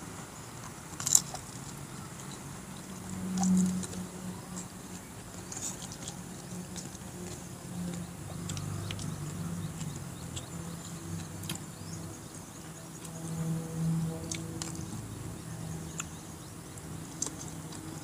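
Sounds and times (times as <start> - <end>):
chewing with wet mouth clicks: 0.6 - 12.0, 14.0 - 18.0.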